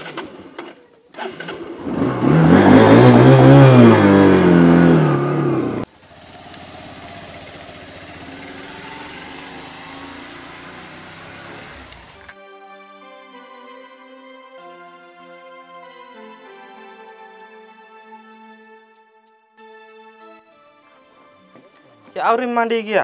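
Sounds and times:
motorcycle engine revving: 0.0s - 12.3s.

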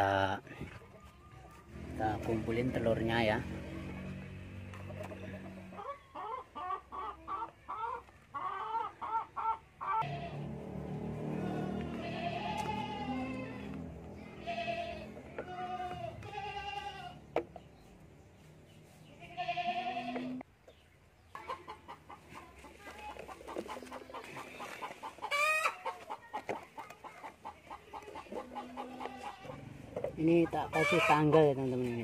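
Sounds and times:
chickens clucking: 0.0s - 14.3s, 20.0s - 32.0s
chicken squawk: 5.1s - 10.1s, 23.3s - 26.4s, 27.7s - 29.6s, 30.6s - 31.5s.

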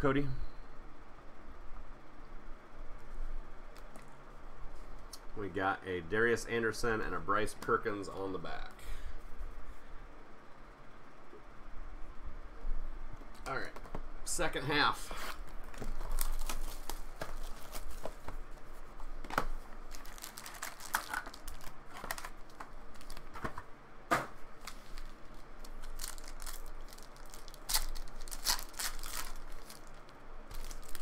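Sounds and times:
foil wrappers tearing and crinkling: 15.1s - 18.1s, 19.9s - 23.4s, 24.6s - 31.0s.

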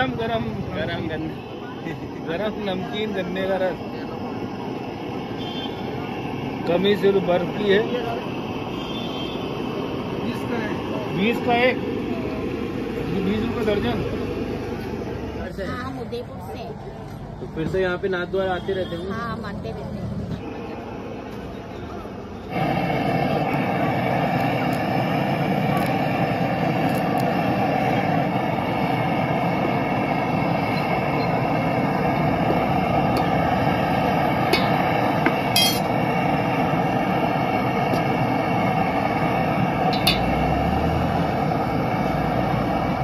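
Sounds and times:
stove burner flame rushing: 0.0s - 43.0s
metal clinking against brass pot: 34.5s - 34.8s, 35.5s - 36.0s, 39.9s - 40.3s.

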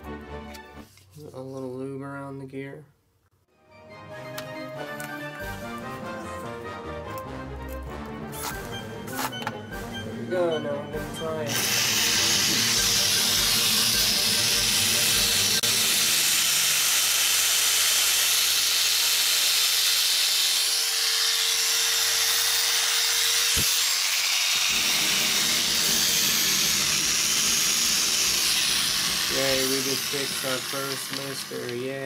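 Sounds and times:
electric clipper motor whirring: 11.5s - 32.0s.

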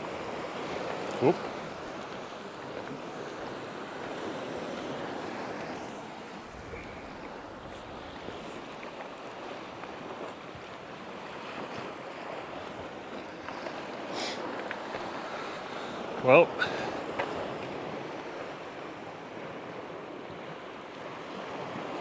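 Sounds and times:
wind on microphone: 0.0s - 15.4s
waves breaking over rocks: 0.0s - 22.0s.

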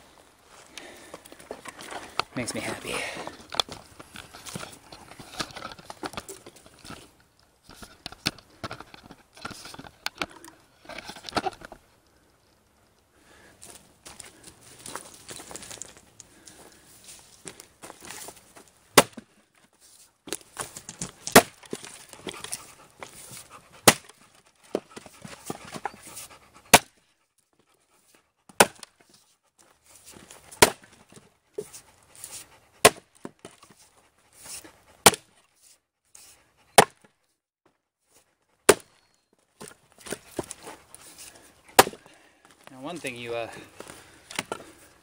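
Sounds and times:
axe chopping firewood: 18.9s - 19.4s, 20.3s - 27.0s, 28.5s - 29.0s, 30.1s - 33.6s, 34.5s - 35.4s, 36.8s - 37.1s, 38.7s - 39.0s, 41.2s - 42.2s, 44.3s - 44.7s.

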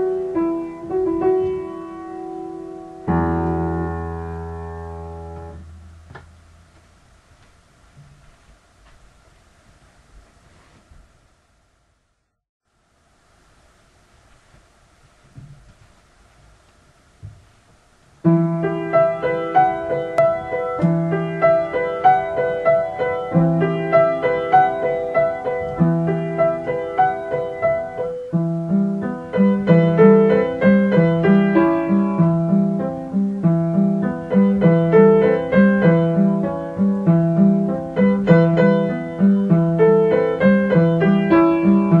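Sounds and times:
piano music: 0.0s - 6.8s, 18.2s - 42.0s.

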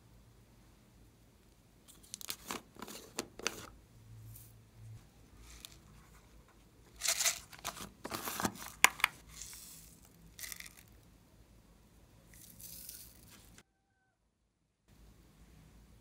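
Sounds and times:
sequins rattling: 6.9s - 7.5s, 9.2s - 11.0s
plastic container clicking open: 8.1s - 9.2s.

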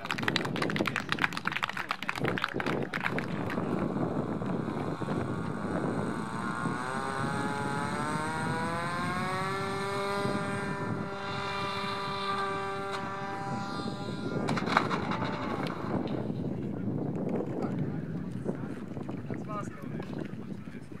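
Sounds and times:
electric motor and propeller whining: 2.9s - 19.1s.

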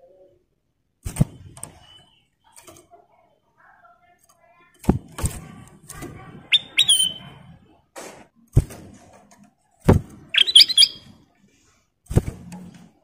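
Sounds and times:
bird chattering chirps: 6.5s - 7.2s, 10.3s - 11.0s
bird high whistles: 6.5s - 7.3s, 10.4s - 11.1s.

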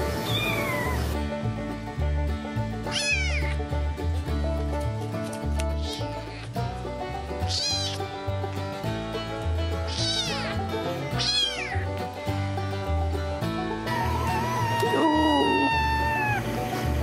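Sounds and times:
background music: 0.0s - 17.0s
kitten mewing: 2.9s - 3.6s, 7.4s - 8.1s, 9.9s - 10.6s, 11.2s - 11.8s, 14.0s - 16.5s.

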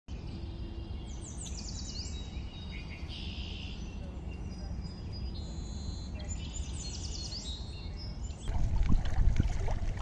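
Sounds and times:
steady low rumble: 8.5s - 10.0s.

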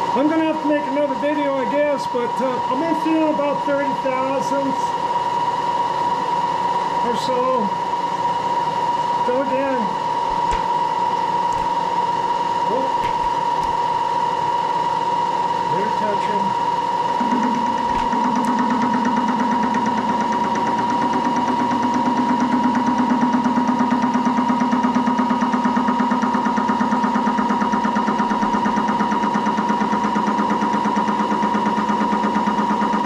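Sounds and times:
machine spindle whine: 0.0s - 33.0s
cutter pulsing in metal: 9.3s - 14.3s, 15.7s - 33.0s.

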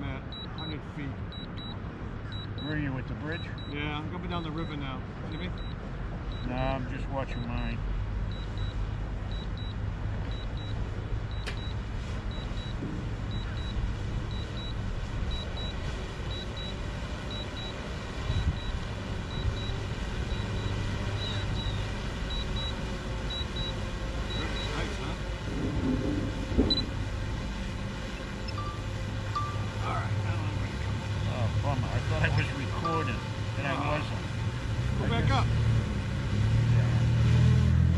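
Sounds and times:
road traffic rumble: 0.0s - 37.9s
high electronic beeps: 19.3s - 25.0s, 26.7s - 26.9s, 28.4s - 29.7s, 32.2s - 34.0s.

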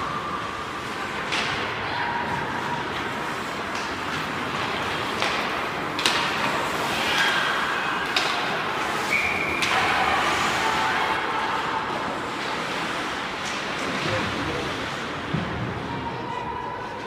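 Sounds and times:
hockey sticks and puck knocking: 3.5s - 10.0s.

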